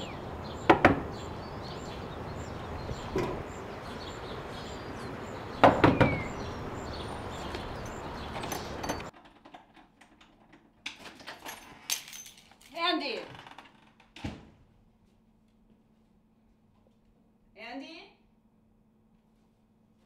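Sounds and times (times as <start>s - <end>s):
outdoor ambience: 0.0s - 20.0s
fist knocking on door: 5.6s - 6.3s.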